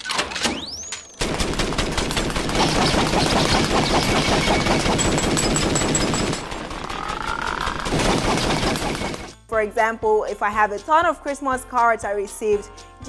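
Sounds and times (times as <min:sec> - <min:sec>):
rapid-fire pops: 0:01.2 - 0:09.4.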